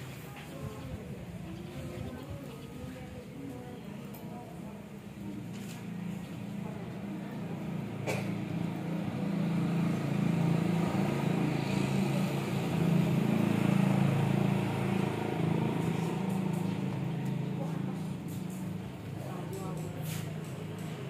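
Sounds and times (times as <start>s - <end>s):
vehicle engine running: 6.1s - 21.0s.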